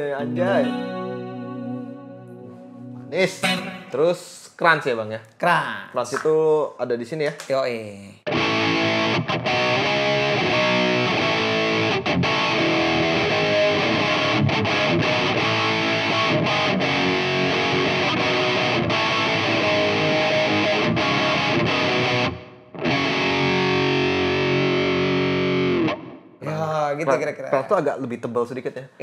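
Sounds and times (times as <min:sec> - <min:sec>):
overdriven electric guitar riffs: 0:00.0 - 0:04.2, 0:08.3 - 0:26.4
guitar chord ringing: 0:00.0 - 0:04.3.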